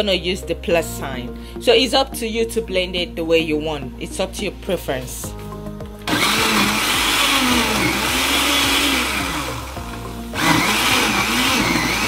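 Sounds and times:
blender chopping vegetables: 6.1s - 12.0s.

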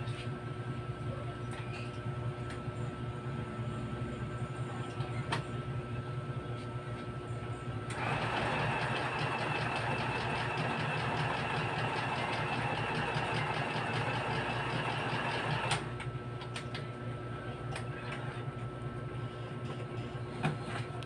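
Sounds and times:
sewing machine stitching: 7.9s - 15.8s.

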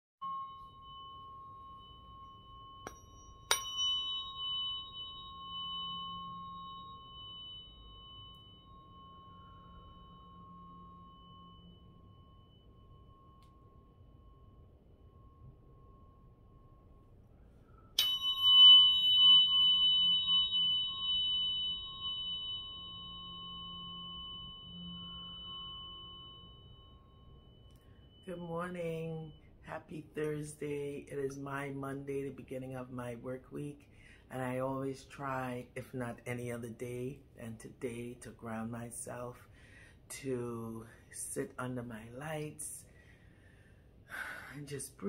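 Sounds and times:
tuning fork striking disc: 0.2s - 31.4s
tuning fork ringing: 0.2s - 45.0s.

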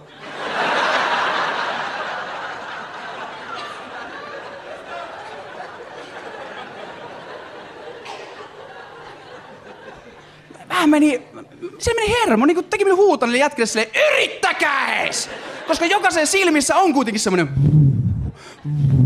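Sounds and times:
audience laughing: 0.0s - 10.7s, 14.9s - 16.6s.

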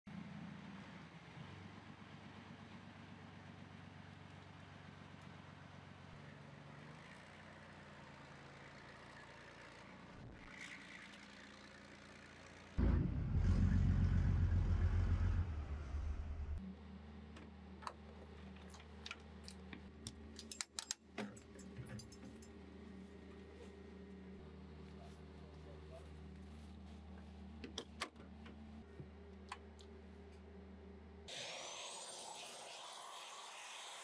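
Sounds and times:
loud low rumble: 12.8s - 16.6s
truck engine running: 12.8s - 16.6s.

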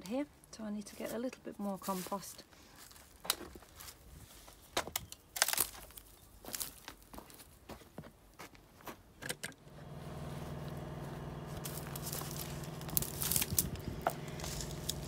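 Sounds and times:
motor humming: 9.6s - 15.0s
sharp crackles: 11.5s - 15.0s.

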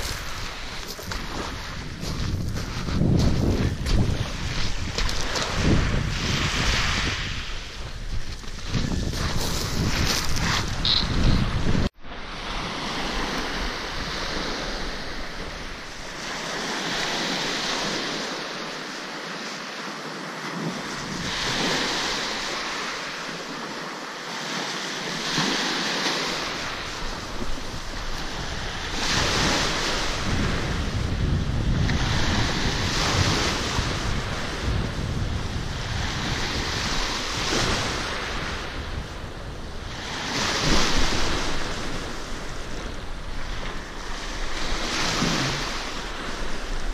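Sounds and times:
wind rumble on microphone: 0.0s - 18.4s, 25.3s - 46.9s
small waves breaking on pebble beach: 12.1s - 31.2s.

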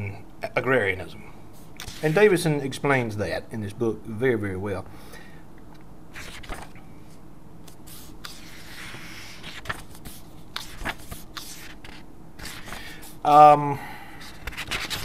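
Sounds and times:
book pages rustling: 1.8s - 2.3s, 6.2s - 13.2s, 14.2s - 15.0s.

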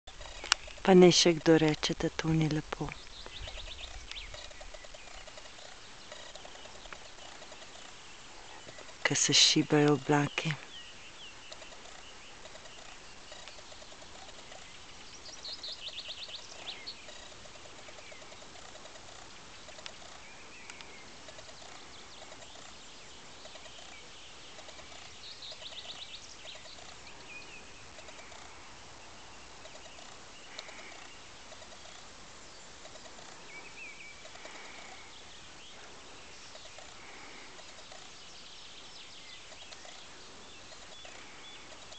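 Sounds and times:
steady outdoor hiss: 0.0s - 41.9s
high rapid bird trill: 0.1s - 35.2s
low pulsing bird call: 0.1s - 41.9s.

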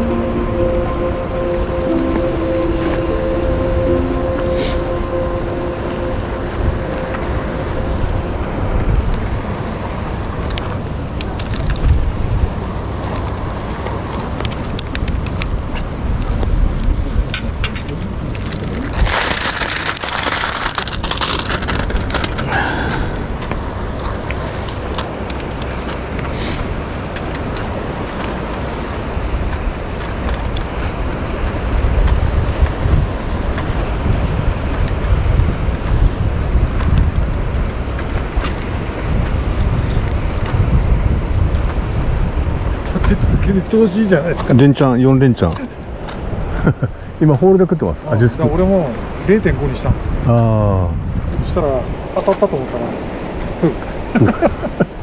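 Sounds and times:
wind noise on microphone: 2.8s - 44.8s, 45.6s - 47.2s, 48.4s - 52.2s
plastic bag rustling: 18.4s - 22.4s.

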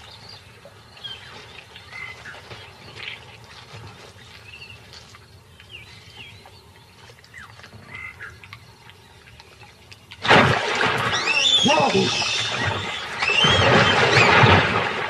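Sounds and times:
small animals chirping and croaking: 11.1s - 14.3s.

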